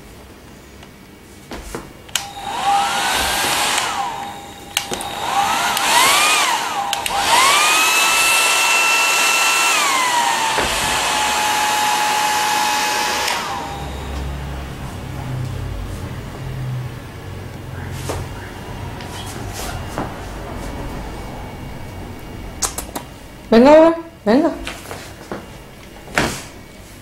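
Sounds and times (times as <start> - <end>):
hair dryer switch clicks: 2.1 - 7.5
hair dryer blowing: 2.1 - 22.3.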